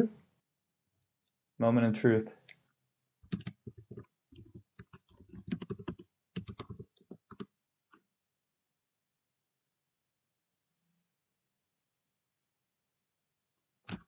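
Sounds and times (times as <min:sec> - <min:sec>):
computer keyboard typing: 0:03.2 - 0:07.5.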